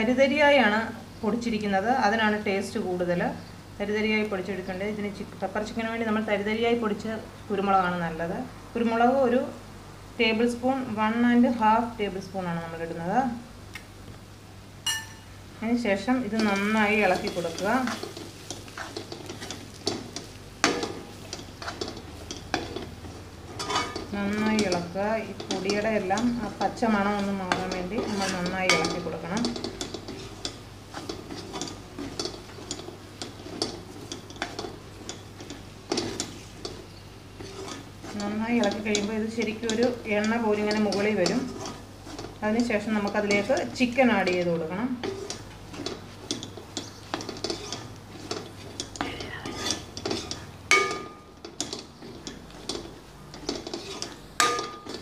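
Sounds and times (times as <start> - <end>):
metal spoon scraping metal pan: 16.3 - 55.0.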